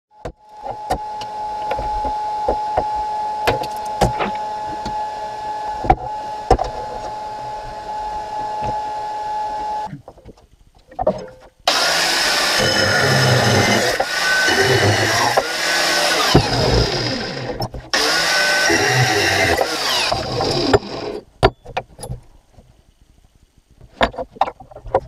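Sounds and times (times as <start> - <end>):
steady high hum: 11.6 - 23.8
angle grinder: 11.7 - 21.2.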